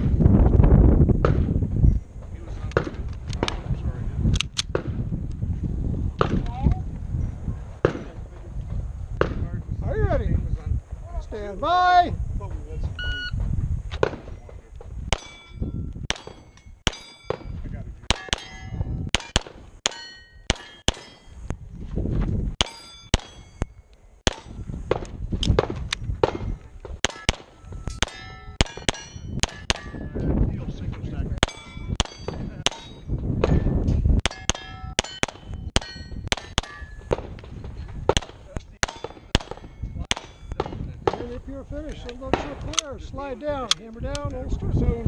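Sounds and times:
pistol shots: 15.1s - 17.5s, 18.1s - 21.2s, 24.3s - 30.0s, 31.4s - 37.4s, 38.1s - 41.3s
steel plates ringing clang: 15.2s - 21.4s, 22.6s - 24.7s, 27.0s - 30.2s, 31.4s - 37.1s, 38.8s - 40.7s.

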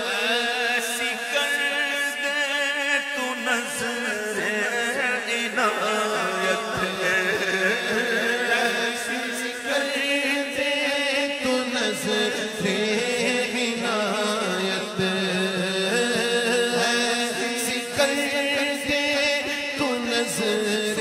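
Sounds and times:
man singing: 0.0s - 21.0s.

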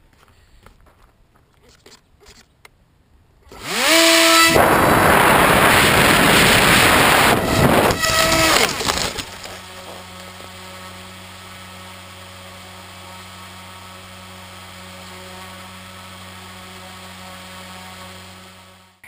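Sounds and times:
low hum: 3.2s - 19.0s
plane crashing through branches: 3.5s - 11.2s
electric buzz: 3.5s - 19.0s.

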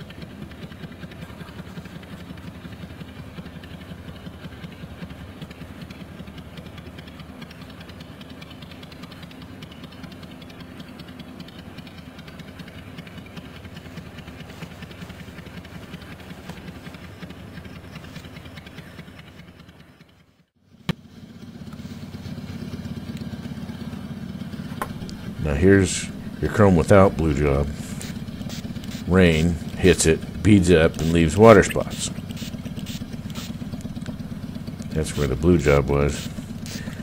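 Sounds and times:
cloth scrubbing chrome pipe: 13.8s - 17.2s, 35.0s - 37.0s.

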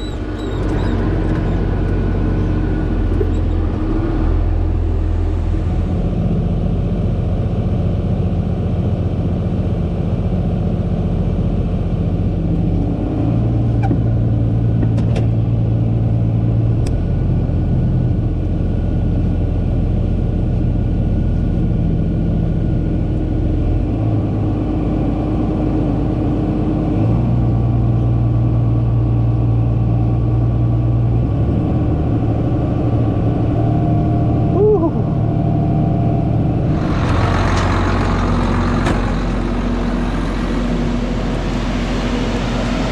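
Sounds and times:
short squeak: 0.0s - 1.8s, 3.2s - 3.7s
tractor diesel engine under load: 0.0s - 42.9s.

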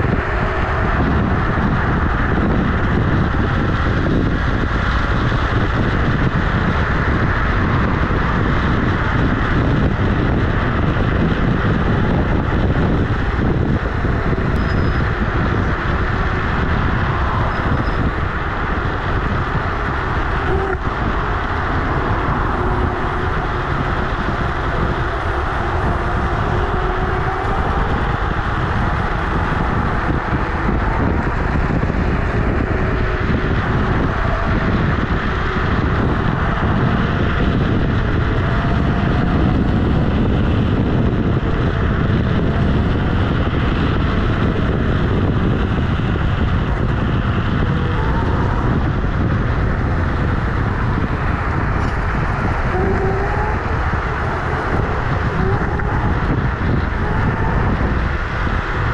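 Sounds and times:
rush of wind: 0.0s - 58.9s.

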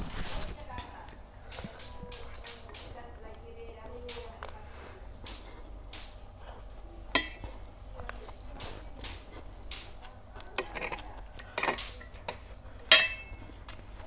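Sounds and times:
slurping and chewing noodles: 4.7s - 14.0s
metal utensils scraping tray: 7.1s - 7.4s, 10.5s - 13.4s.

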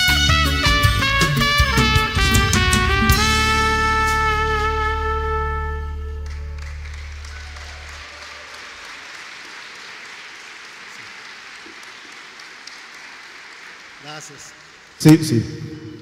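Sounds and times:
held trumpet note: 0.0s - 6.8s
low bass tone: 0.3s - 7.2s
audience applause: 6.2s - 15.1s.

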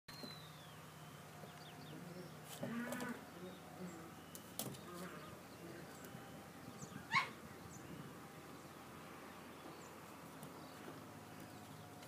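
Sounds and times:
puppy yipping: 7.1s - 7.4s.

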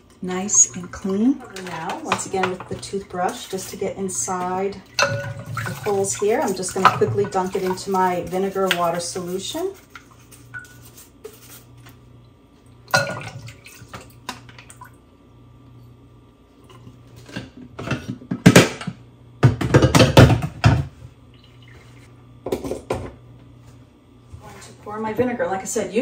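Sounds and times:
water sloshing and dripping: 0.3s - 10.7s, 12.2s - 15.0s, 21.3s - 22.1s
toothbrush scrubbing a filter: 5.6s - 11.9s.

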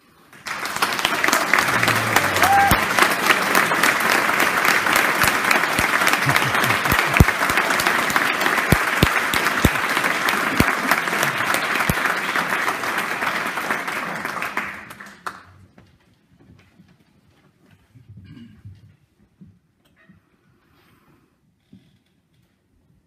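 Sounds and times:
audience applauding: 0.3s - 15.5s.

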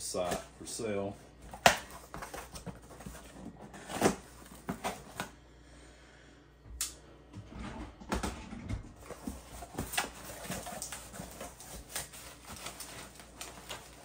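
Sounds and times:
bubble wrap crinkling: 9.0s - 14.0s.

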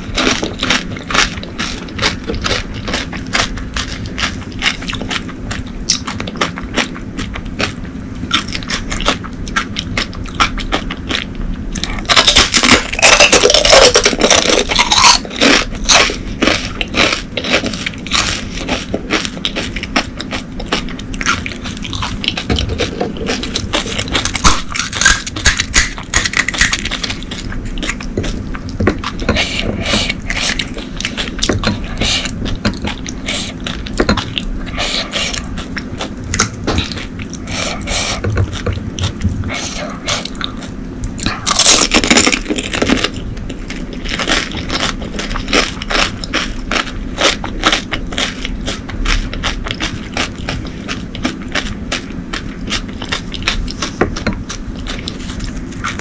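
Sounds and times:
crisp shells crunching: 11.9s - 20.0s, 20.6s - 28.4s.

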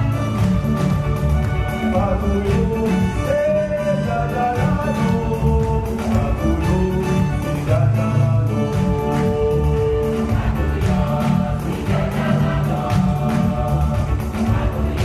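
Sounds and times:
hand drums: 0.0s - 15.0s
keyboard: 0.0s - 15.0s
choir singing: 4.2s - 15.0s.

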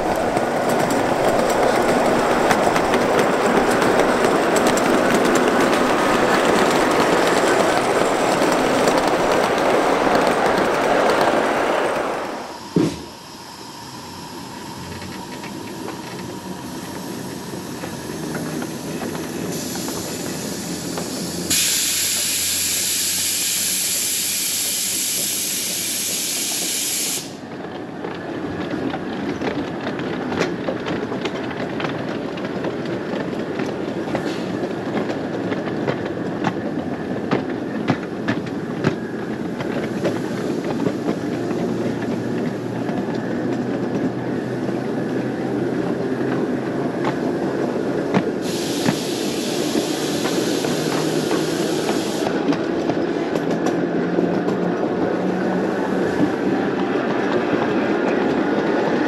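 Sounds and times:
wheels clicking over rail joints: 0.0s - 13.2s, 14.5s - 22.4s, 27.3s - 59.0s
wheels rumbling on rail: 0.0s - 59.0s
loud steady hiss: 12.0s - 27.5s, 48.4s - 52.4s.

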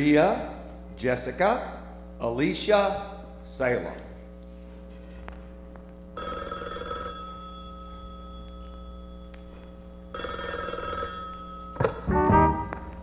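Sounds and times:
recorded telephone ringing: 6.2s - 12.3s.

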